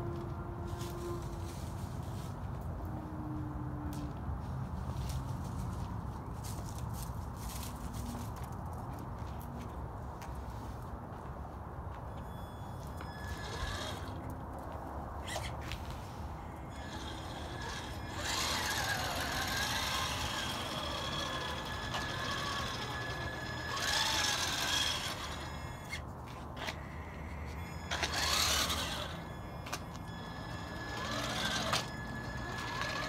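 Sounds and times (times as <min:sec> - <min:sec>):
toy car electric motor whining: 0:12.8 - 0:14.4, 0:15.2 - 0:33.0.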